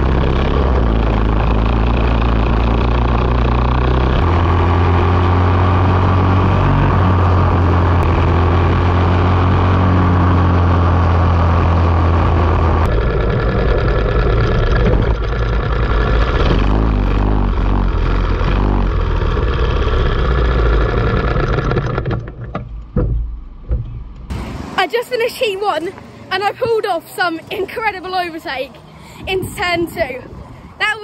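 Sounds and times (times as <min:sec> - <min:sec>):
kart engine running: 0:00.0 - 0:24.8.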